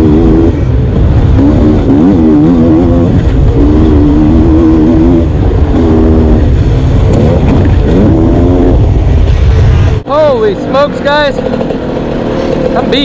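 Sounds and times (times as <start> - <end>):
dirt bike engine revving: 0.0 - 10.0, 10.6 - 13.0
wind rumble on microphone: 0.0 - 10.0.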